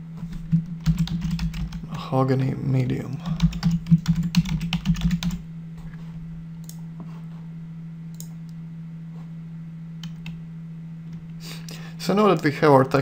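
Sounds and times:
steady low hum: 0.0s - 13.0s
typing on computer keyboard: 0.5s - 1.8s, 3.2s - 5.4s.

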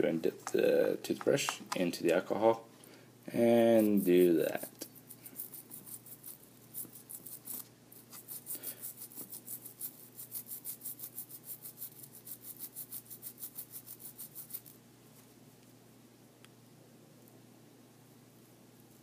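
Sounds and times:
toothbrush scrubbing: 3.5s - 14.8s.

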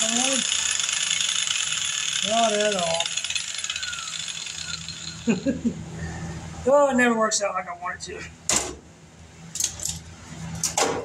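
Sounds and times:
power tool rasping on sheet metal: 0.0s - 5.4s.

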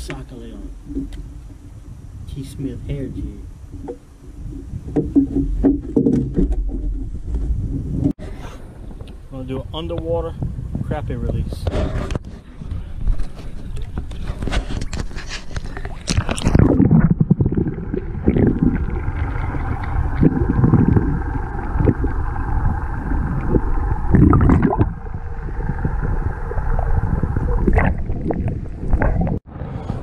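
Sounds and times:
water swishes: 0.0s - 9.3s, 12.4s - 30.0s
muffled underwater sloshing: 11.8s - 29.5s
water splashing and dripping: 15.8s - 29.4s.

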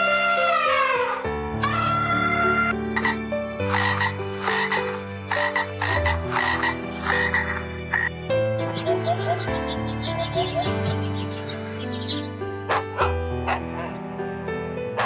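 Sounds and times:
frog croaking: 0.4s - 8.1s
lark twittering song: 2.4s - 13.9s.

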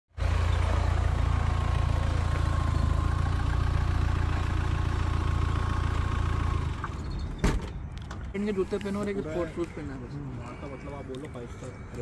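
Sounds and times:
diesel engine idling: 0.2s - 7.2s.

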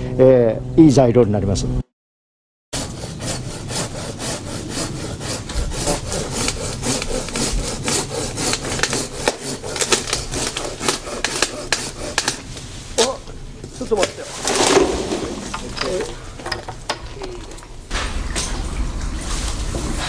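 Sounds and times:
handsaw cutting wood: 2.8s - 12.6s, 14.3s - 15.6s.

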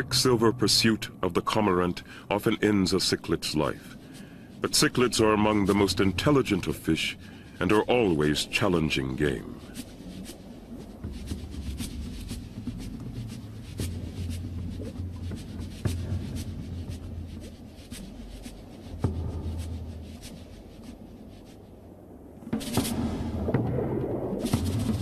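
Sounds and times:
low underwater rumble: 21.9s - 25.0s.

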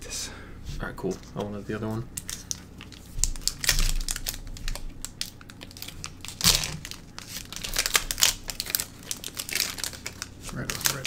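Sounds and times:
foil wrapper tearing and crinkling: 2.2s - 11.0s.

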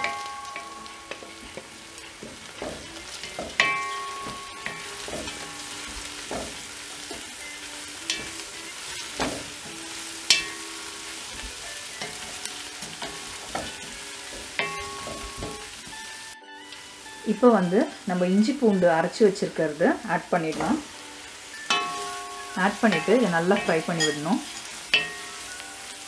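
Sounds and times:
wooden spoon scraping and knocking pot: 0.0s - 7.4s
vegetables sizzling in oil: 0.0s - 26.0s.

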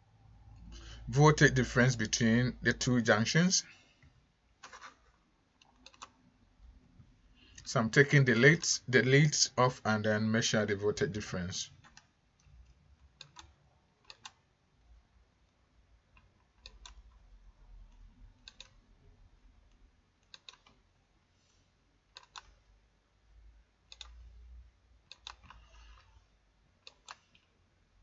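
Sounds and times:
low room noise: 0.0s - 28.0s
computer mouse clicks: 4.6s - 6.2s, 11.8s - 14.4s, 16.1s - 17.3s, 17.9s - 18.8s, 19.7s - 20.9s, 22.1s - 22.7s, 23.8s - 24.4s, 25.0s - 26.2s, 26.8s - 27.6s.

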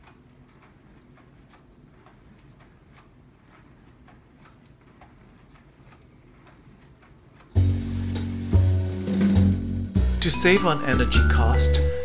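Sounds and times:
soft ticks: 0.0s - 7.6s
dishwasher hum: 0.0s - 12.0s.

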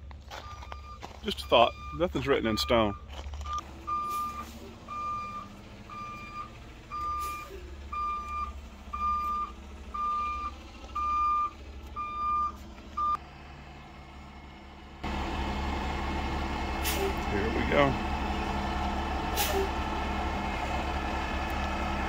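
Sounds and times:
diesel engine running: 0.0s - 22.0s
back-up alarm beeping: 0.4s - 13.2s
loud rushing noise from truck: 3.6s - 22.0s.

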